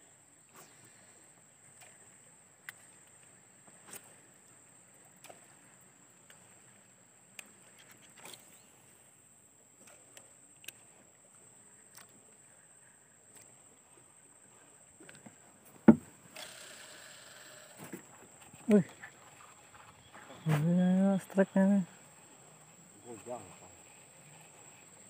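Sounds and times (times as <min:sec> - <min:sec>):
faint high whine: 0:16.2 - 0:25.0.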